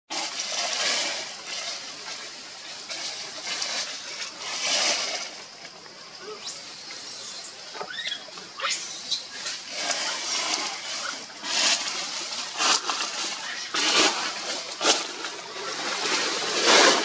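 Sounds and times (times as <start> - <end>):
hissy rustling noise: 0.1 - 17.0
thin high whistle: 6.2 - 9.4
quick rising squeaks: 6.3 - 10.0.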